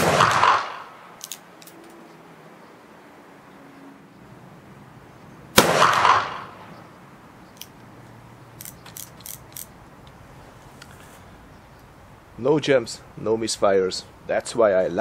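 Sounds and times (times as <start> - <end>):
revolver gunshot echoing: 0.0 - 1.0, 5.5 - 6.7.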